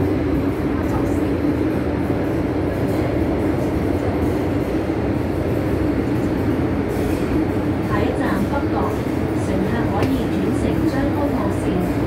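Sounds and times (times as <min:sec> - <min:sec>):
metro train cabin noise: 0:00.0 - 0:12.0.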